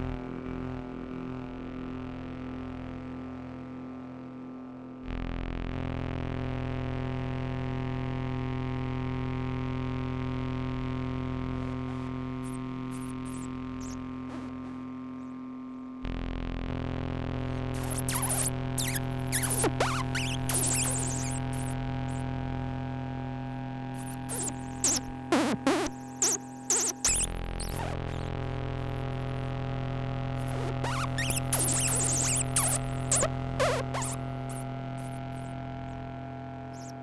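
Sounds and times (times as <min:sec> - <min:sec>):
sweeping synth chirps and blips: 0:17.8 - 0:21.8, 0:24.0 - 0:28.3, 0:30.4 - 0:35.4.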